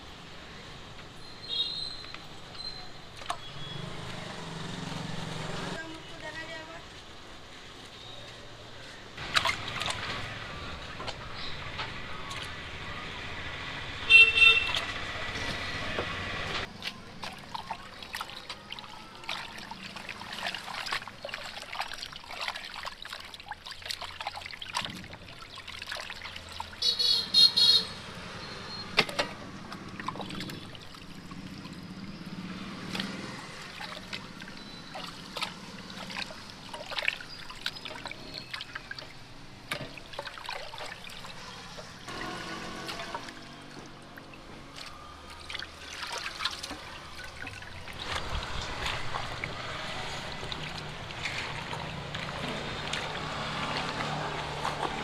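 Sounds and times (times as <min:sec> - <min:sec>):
vehicle horns honking: 0:14.0 - 0:15.0, 0:26.8 - 0:29.0, 0:42.1 - 0:43.7.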